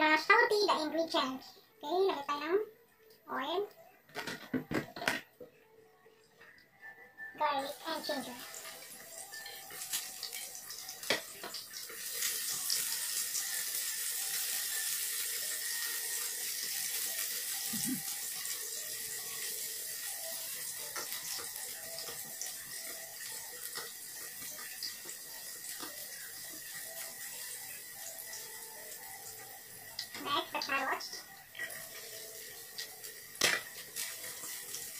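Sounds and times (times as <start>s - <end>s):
garlic sizzling in hot oil: 7.4s - 34.9s.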